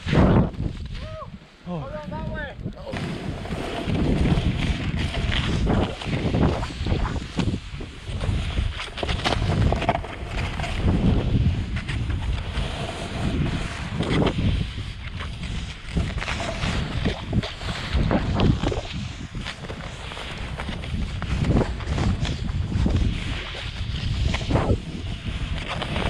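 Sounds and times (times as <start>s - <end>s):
wind buffeting microphone: 0.0s - 26.0s
snowboard hissing through powder snow: 3.0s - 8.6s, 12.4s - 26.0s.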